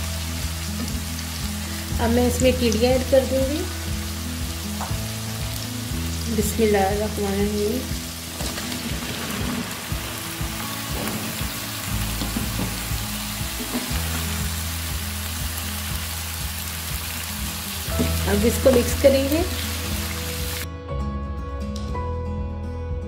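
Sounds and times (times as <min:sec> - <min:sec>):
onions sizzling in hot oil: 0:00.0 - 0:20.7
vegetable chunks clattering into pan: 0:08.4 - 0:10.0, 0:10.9 - 0:14.3.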